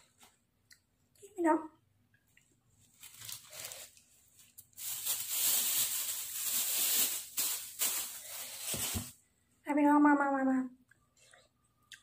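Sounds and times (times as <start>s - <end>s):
plastic bag crinkling and rustling: 2.7s - 9.2s.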